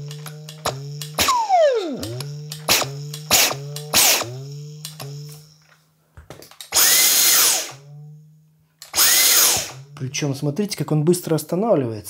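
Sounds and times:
vacuum motor whine: 0.0 - 5.8, 6.7 - 10.0
low steady buzz: 0.0 - 11.1.

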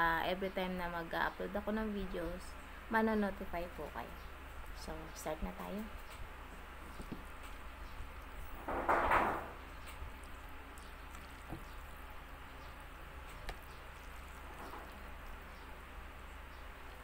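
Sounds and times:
wet squishing of noodles: 9.6 - 15.6.

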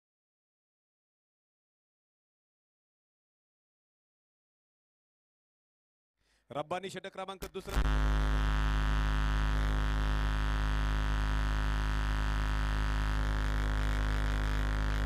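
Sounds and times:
electrical hum: 7.6 - 15.0.

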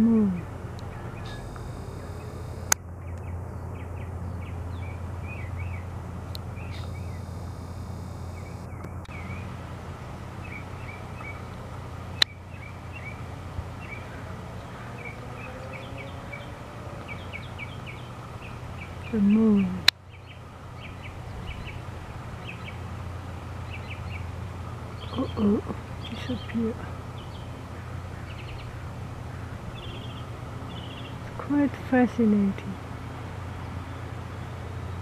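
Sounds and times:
small birds chirping: 0.0 - 35.0
steady low hum: 0.0 - 35.0
sharp clicks: 0.8 - 3.3
camera zoom motor whirring: 1.3 - 2.8, 6.6 - 8.8.

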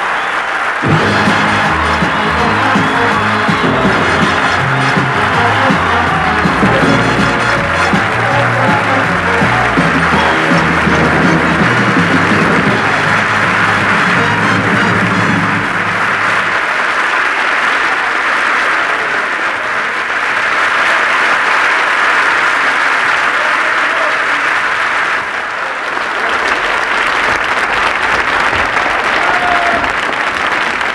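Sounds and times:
audience applauding: 0.0 - 30.9
backing music: 0.8 - 16.7.

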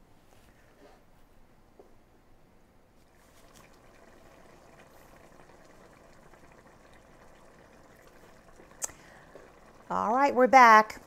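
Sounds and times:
food simmering in a pot: 3.0 - 11.0.

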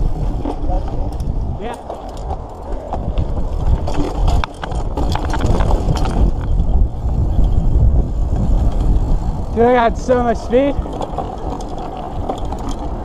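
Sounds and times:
bike clattering over bumps: 0.0 - 13.0
bike tyre noise on dirt: 0.0 - 13.0
wind rumble on microphone: 0.0 - 13.0.

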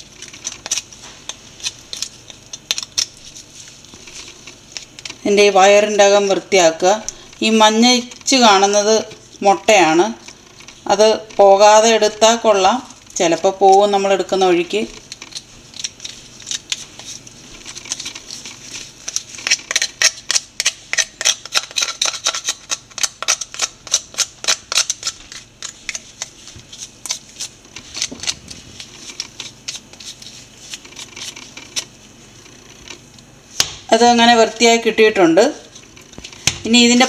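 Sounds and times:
knife scraping crab shell: 0.0 - 5.2, 15.0 - 32.0.

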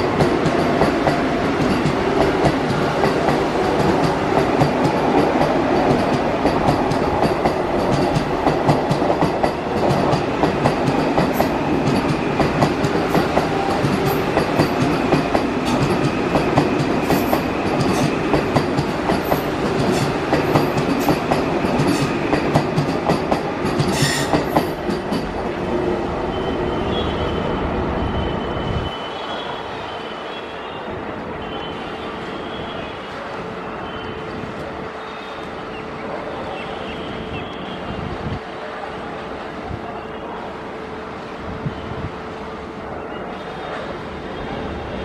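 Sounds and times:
train wheels clattering over rail joints: 0.1 - 25.5.

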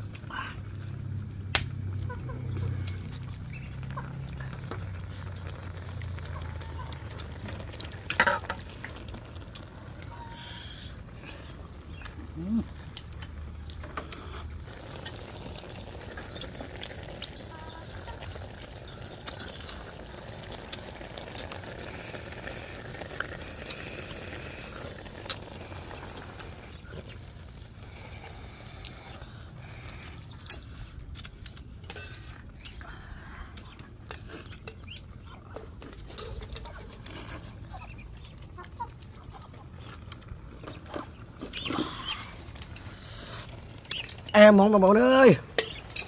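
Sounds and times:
wet chewing and lip-smacking: 18.2 - 29.2, 29.8 - 44.3
birds calling: 37.6 - 46.0.

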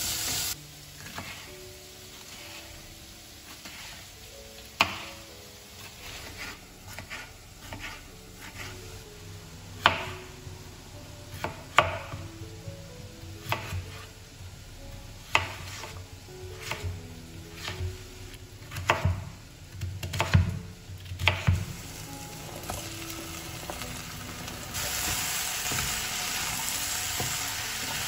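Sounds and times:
knife slicing potatoes: 5.8 - 8.9, 17.5 - 17.9
knife chopping on cutting board: 6.1 - 8.7, 18.7 - 19.2, 21.2 - 21.6.

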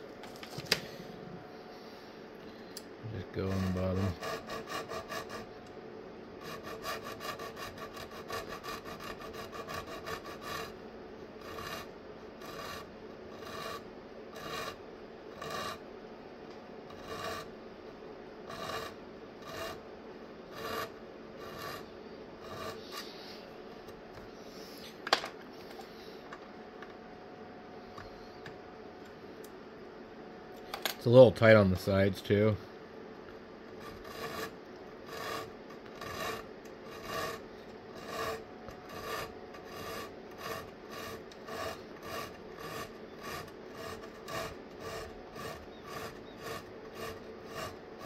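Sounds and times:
hand file rasping on metal: 3.4 - 5.5, 6.4 - 10.8, 11.4 - 14.8, 15.4 - 15.8, 16.9 - 17.5, 18.5 - 19.8, 20.5 - 23.4, 33.8 - 48.0.

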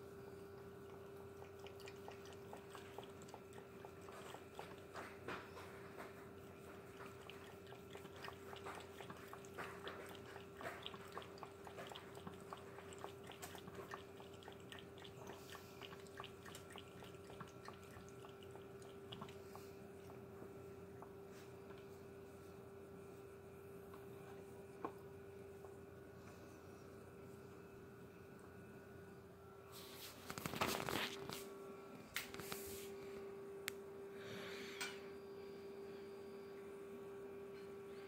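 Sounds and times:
cat lapping water: 0.7 - 21.2.

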